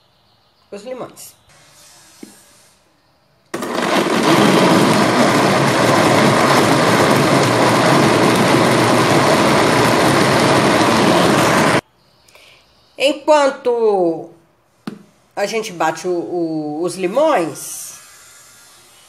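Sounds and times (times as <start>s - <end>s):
blender motor whirring: 3.6s - 11.8s.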